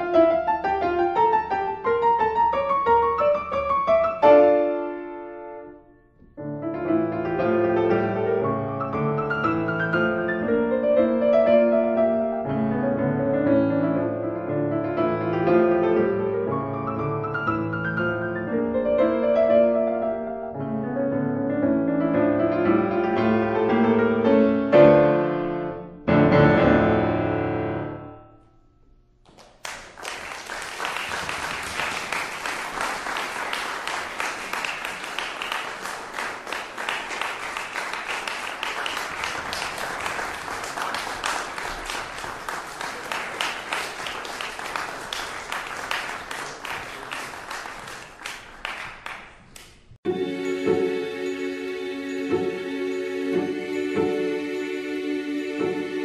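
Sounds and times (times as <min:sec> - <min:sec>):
solo piano piece: 0:00.0 - 0:28.3
audience applause: 0:29.3 - 0:49.4.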